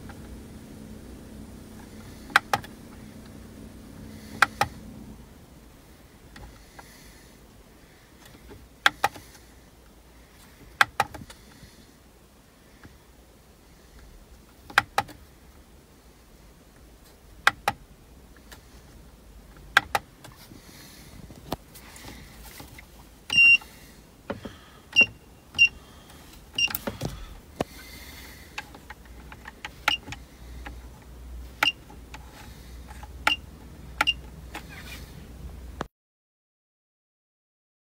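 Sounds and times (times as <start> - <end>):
short high beep: 23.3 - 23.6.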